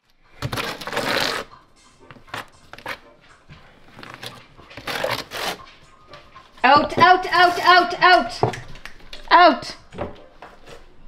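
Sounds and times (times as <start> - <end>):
trowel scraping mortar: 4.2 - 5.7.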